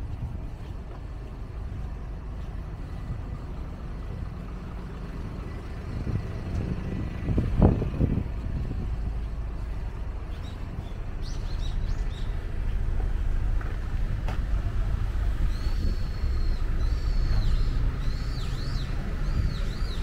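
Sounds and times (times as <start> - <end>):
car traffic rumble: 0.0 - 20.0
bird chirping: 15.5 - 20.0.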